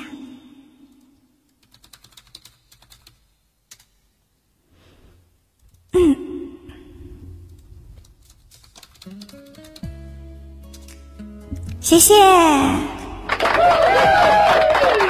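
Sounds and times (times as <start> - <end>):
keyboard clicking: 1.6 - 3.9, 7.5 - 10.0
person sighing: 5.9 - 7.5.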